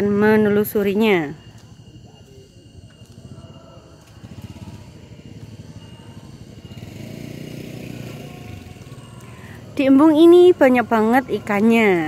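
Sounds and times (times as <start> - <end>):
small engine running: 2.8 - 12.0.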